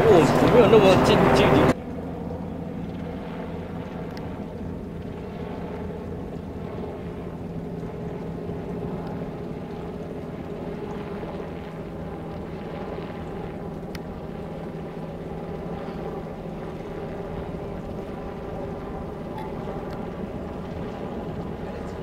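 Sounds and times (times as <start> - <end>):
wind rush: 0.0 - 1.8
engine droning hum: 0.0 - 22.0.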